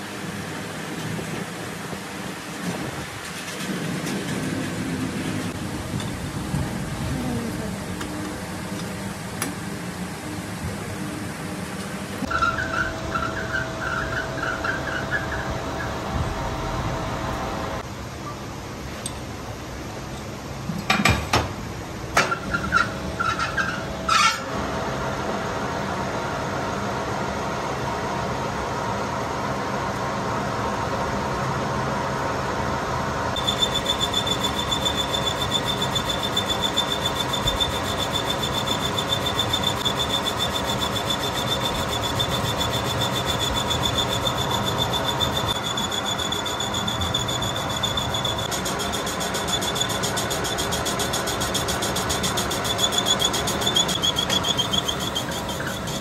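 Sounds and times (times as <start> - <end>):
high cutting tool whine: 33.3 - 56.0
lathe running: 33.3 - 56.0.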